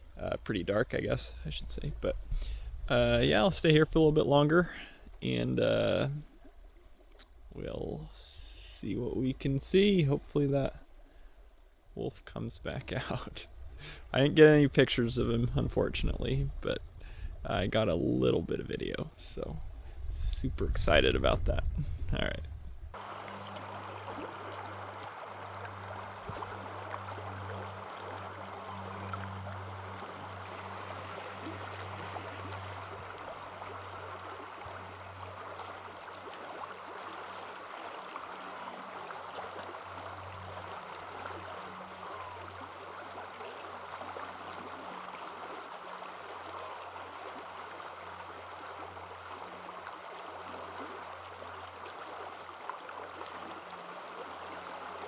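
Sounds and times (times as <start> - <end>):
low hum: 19.0 - 55.0
stream rushing: 22.9 - 55.0.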